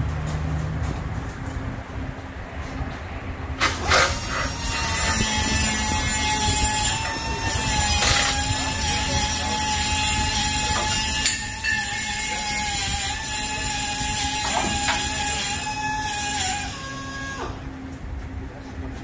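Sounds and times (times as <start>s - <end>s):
power tool whining: 3.6s - 17.6s.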